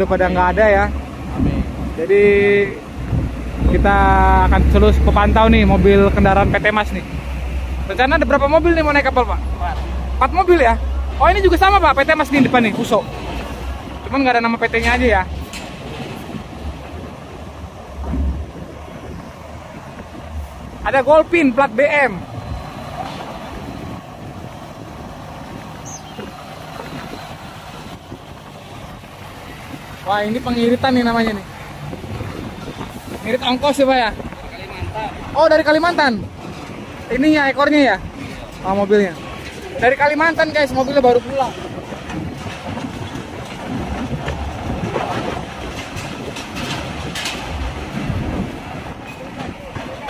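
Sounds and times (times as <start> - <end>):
diesel truck driving past: 0.0 - 50.0
trailer clanking on steel ramp: 0.0 - 50.0.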